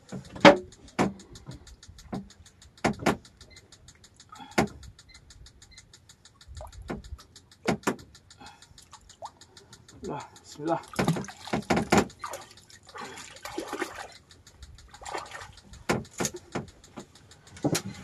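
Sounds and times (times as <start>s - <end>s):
faint fast ticking: 0.0s - 18.0s
fishing tackle knocking on boat: 10.9s - 12.3s.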